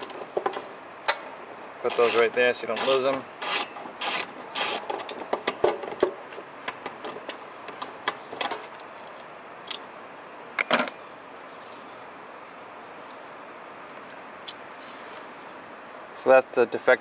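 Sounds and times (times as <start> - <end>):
socket ratchet clicking: 1.9 - 4.9.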